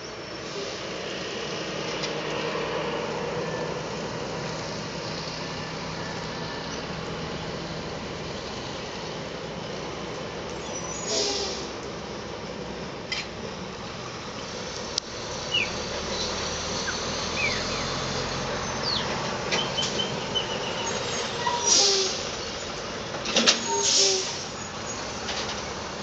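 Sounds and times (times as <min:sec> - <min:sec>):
bird chirps: 0:15.5 - 0:18.0, 0:18.6 - 0:21.3.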